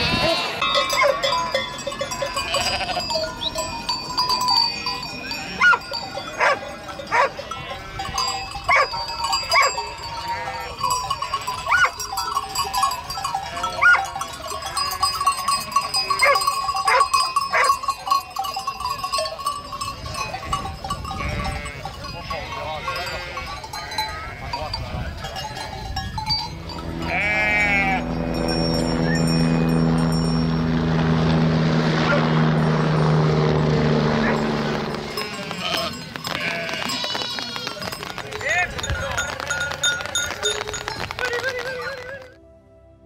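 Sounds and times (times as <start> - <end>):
sheep bleating: 0.0 - 1.1, 2.2 - 3.3, 9.5 - 10.8, 13.4 - 14.0, 21.2 - 22.0, 22.7 - 24.6, 26.9 - 28.5, 35.0 - 37.9
bells ringing: 0.0 - 42.4.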